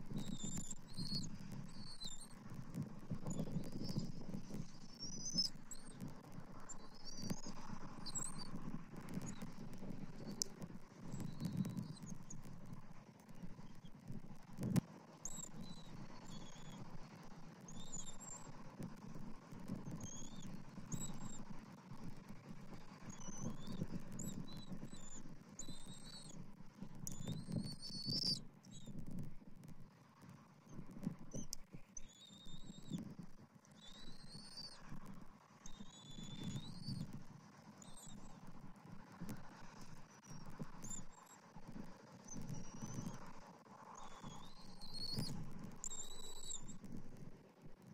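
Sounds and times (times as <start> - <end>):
eaglet peeping: 0.1 - 12.4, 23.0 - 29.0, 30.8 - 33.0, 33.6 - 35.1, 35.7 - 37.2, 43.9 - 46.9.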